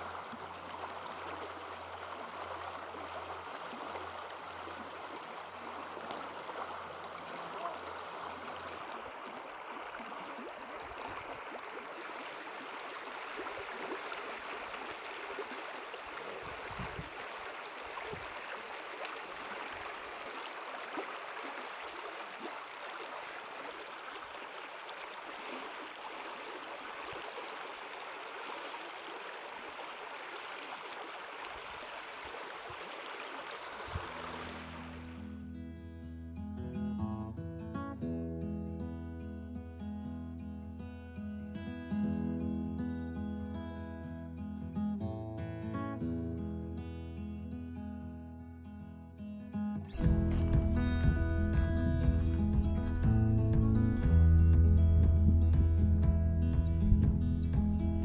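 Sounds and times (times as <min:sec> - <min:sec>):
stream running water: 0:00.0 - 0:35.5, 0:49.8 - 0:58.0.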